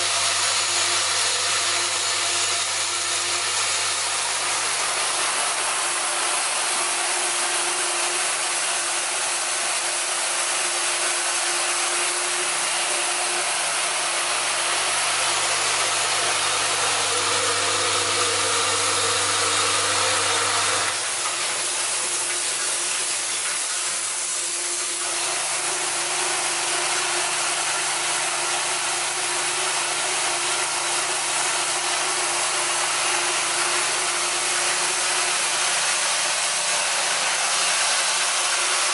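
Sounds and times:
vibratory feeders humming: 14.3 - 21.6.

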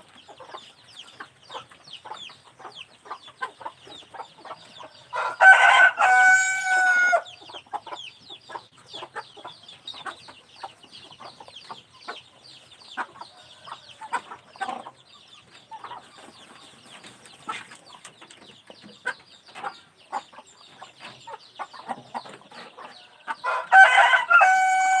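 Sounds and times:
rooster crowing: 5.1 - 7.3, 23.4 - 25.0.

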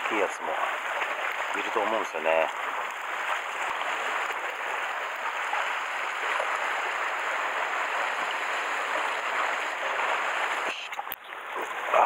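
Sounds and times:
surf hissing on rocky shore: 3.0 - 10.8.

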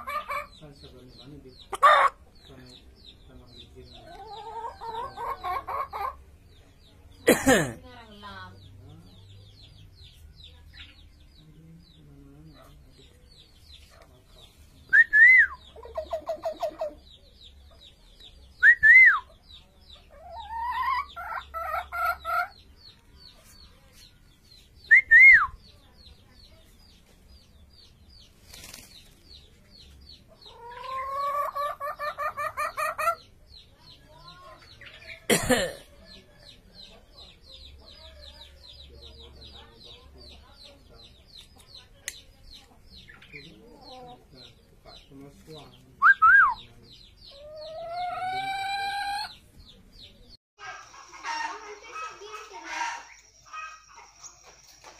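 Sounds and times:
bird hen-like clucking: 0.0 - 0.8, 1.5 - 6.4, 15.4 - 18.0, 19.2 - 24.1, 30.1 - 35.3, 46.6 - 54.9
myna whistled calls: 14.8 - 15.8, 18.6 - 19.4, 24.8 - 25.8, 46.0 - 46.8.

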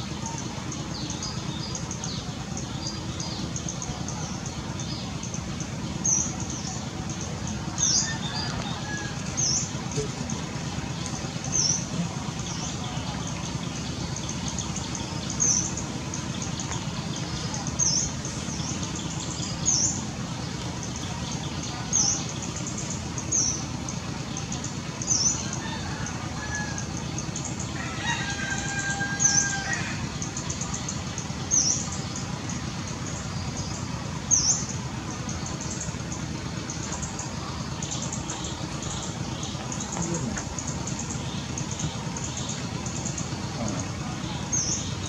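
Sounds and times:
rooster crowing: 7.8 - 9.6, 25.4 - 27.0, 27.8 - 30.1.

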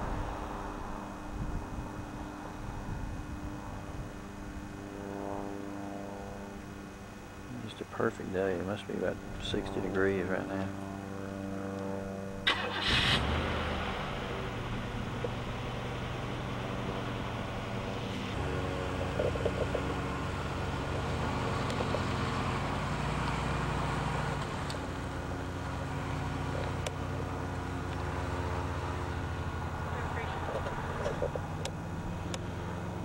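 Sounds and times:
car engine hum: 0.0 - 33.0
road noise rush: 0.0 - 33.0.

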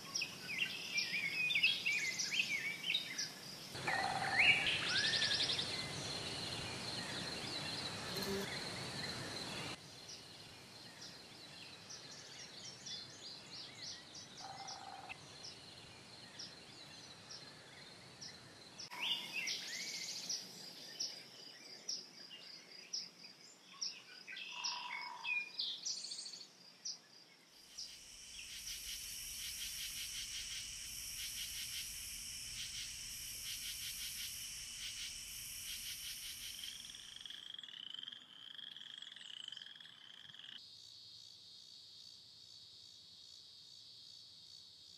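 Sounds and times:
high insect whine: 0.0 - 9.8, 27.6 - 44.9
pulsing insect chorus: 0.0 - 16.7, 17.3 - 22.1, 27.5 - 44.9
insect chirps: 0.0 - 44.9.

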